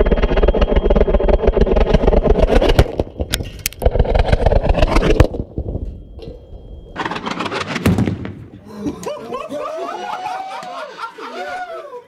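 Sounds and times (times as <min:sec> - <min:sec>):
rocket motor roaring with crackle: 0:00.0 - 0:08.4
sharp bangs: 0:01.4 - 0:08.7.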